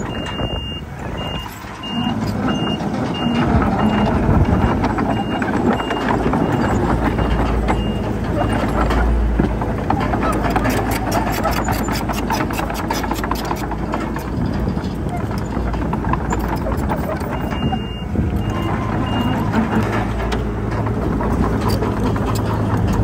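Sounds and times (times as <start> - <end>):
reversing alarm beeping: 0.0 - 8.9, 17.2 - 19.8
diesel engines rumbling: 0.0 - 23.0.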